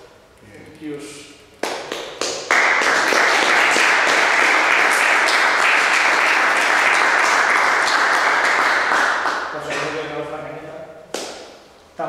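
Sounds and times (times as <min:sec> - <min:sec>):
audience applauding: 0:01.6 - 0:10.0.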